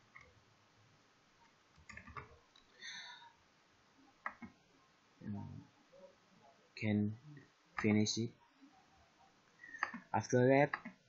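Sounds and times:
computer mouse clicks: 1.8s - 2.7s, 4.2s - 4.6s, 9.7s - 10.1s, 10.7s - 11.0s.

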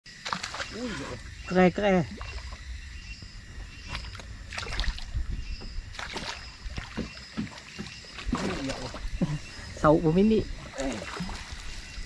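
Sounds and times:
water splashing around a net: 0.1s - 2.6s, 3.8s - 5.2s, 5.8s - 9.4s, 10.4s - 12.0s
steady low rumble: 1.2s - 6.7s.

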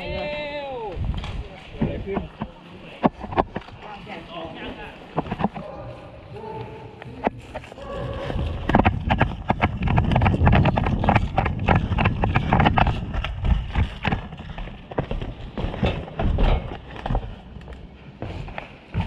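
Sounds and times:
running footsteps on dirt: 1.0s - 19.0s
gear rattling: 7.3s - 17.5s.

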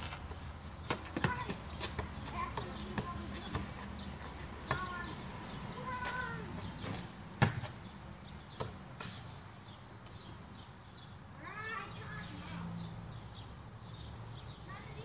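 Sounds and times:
basketball bouncing thumps: 0.8s - 5.0s, 6.8s - 7.8s.

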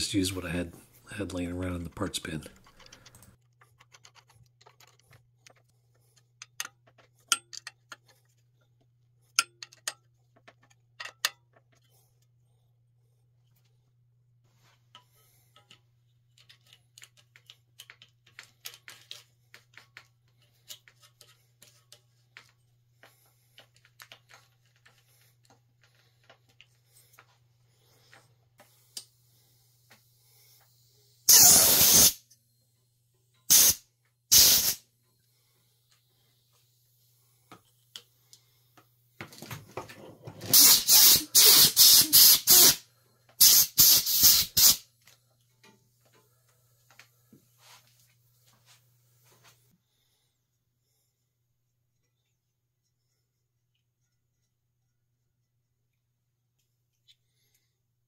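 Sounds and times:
faint clicks of parts handled: 1.2s - 30.8s, 37.4s - 40.0s, 44.6s - 49.8s, 55.4s - 57.8s
air blow gun hissing: 31.2s - 32.2s, 33.5s - 34.8s, 40.5s - 42.8s, 43.4s - 44.8s.

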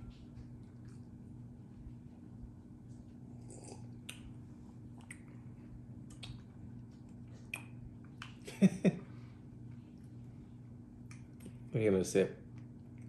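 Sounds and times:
steady low hum: 0.0s - 13.0s
wet mouth clicks and lip smacks: 4.0s - 4.3s, 5.0s - 5.4s, 6.0s - 6.5s, 7.4s - 8.4s.

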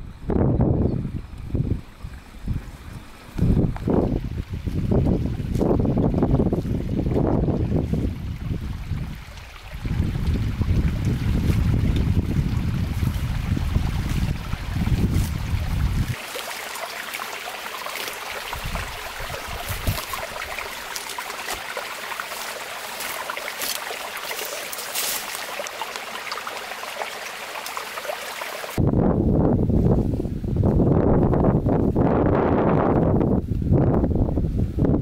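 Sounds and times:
wind rumble on microphone: 0.0s - 16.2s, 18.3s - 23.8s, 28.8s - 35.0s
steady crackling hiss: 12.8s - 28.8s.

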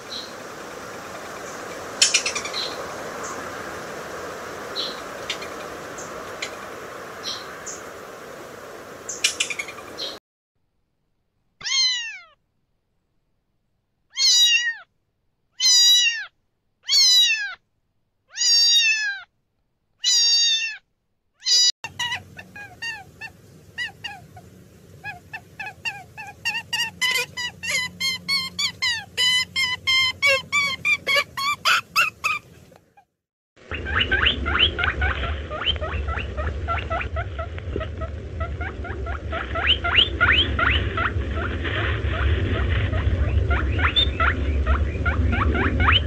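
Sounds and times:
low hum: 0.0s - 10.0s, 21.9s - 30.7s, 33.6s - 46.0s
cat meowing: 11.6s - 12.4s, 14.1s - 14.9s, 15.6s - 17.6s, 18.3s - 19.3s, 20.0s - 20.8s.

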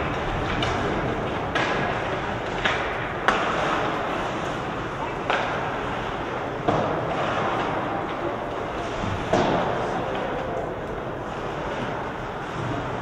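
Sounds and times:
hockey sticks or puck knocking: 0.0s - 4.5s, 5.1s - 5.8s, 6.6s - 8.6s, 9.2s - 10.4s
distant voices: 0.0s - 13.0s.

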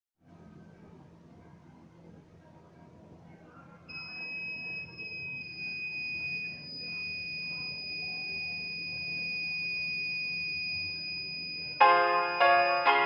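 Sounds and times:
high-pitched alarm buzzer: 3.9s - 13.0s.

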